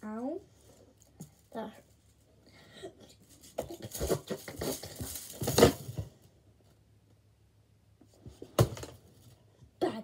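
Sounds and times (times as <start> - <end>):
plastic coil toy rattling: 3.2 - 5.9.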